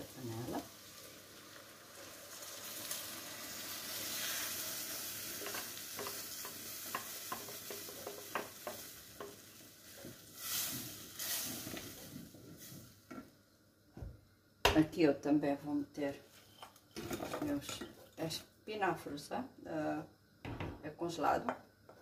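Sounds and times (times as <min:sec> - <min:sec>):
food sizzling in hot fat: 0:00.0 - 0:13.6.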